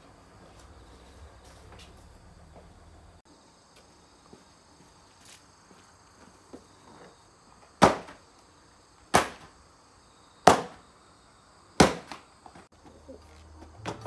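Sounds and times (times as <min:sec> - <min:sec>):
doormat being beaten: 0:07.8 - 0:08.2, 0:09.1 - 0:09.5, 0:10.4 - 0:10.8, 0:11.8 - 0:12.2.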